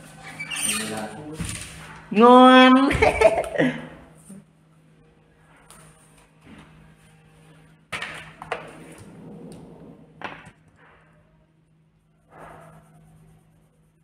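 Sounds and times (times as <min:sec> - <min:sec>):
pencil scratching paper: 0:12.2 - 0:14.0.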